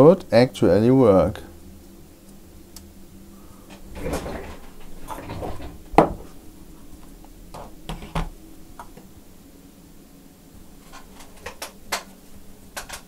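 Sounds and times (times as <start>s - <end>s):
objects clattering on workbench: 3.7s - 6.4s, 7.0s - 9.1s, 12.8s - 13.0s.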